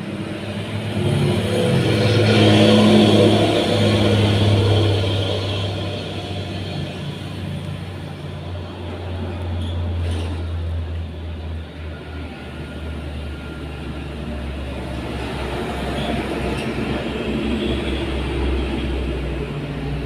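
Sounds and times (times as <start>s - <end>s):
traffic engine rumble: 0.0s - 20.0s.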